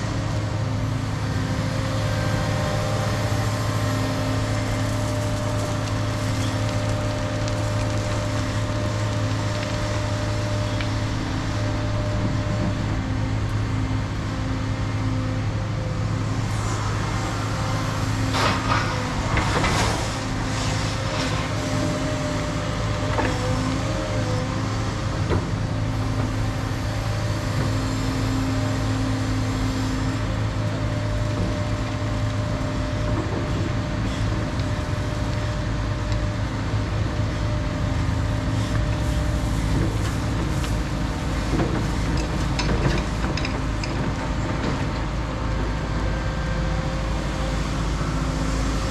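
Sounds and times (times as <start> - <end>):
excavator diesel engine humming: 0.0 - 48.9.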